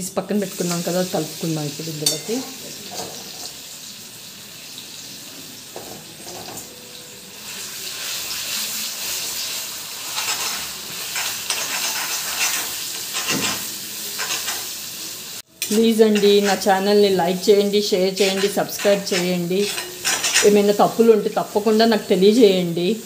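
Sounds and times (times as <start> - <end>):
food sizzling in hot oil: 0.0 - 23.0
metal spatula scraping pan: 7.9 - 14.8, 15.6 - 21.9.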